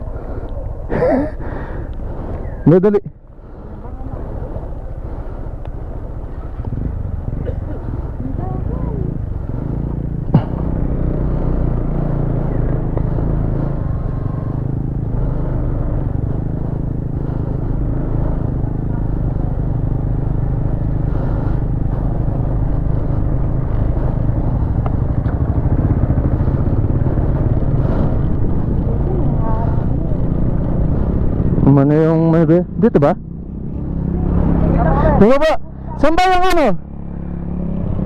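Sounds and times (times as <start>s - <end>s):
motorcycle engine running: 0.0s - 38.0s.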